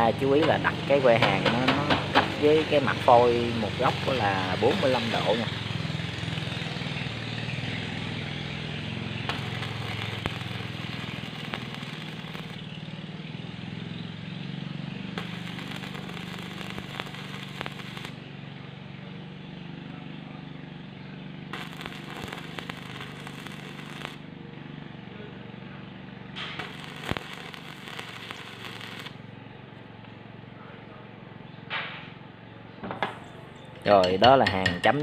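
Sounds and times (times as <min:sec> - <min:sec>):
welding arc crackling and spitting: 0:00.0 - 0:06.9, 0:08.0 - 0:12.7, 0:15.2 - 0:18.2, 0:21.5 - 0:24.2, 0:26.6 - 0:29.2
steady low hum: 0:00.0 - 0:12.8, 0:14.9 - 0:19.1, 0:21.1 - 0:24.5, 0:25.1 - 0:31.1.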